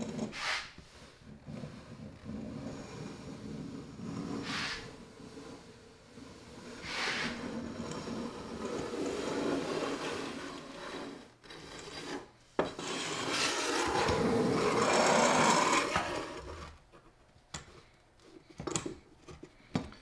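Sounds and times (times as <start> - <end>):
steel rule scraping on board: 0.0 - 0.8, 1.5 - 16.6.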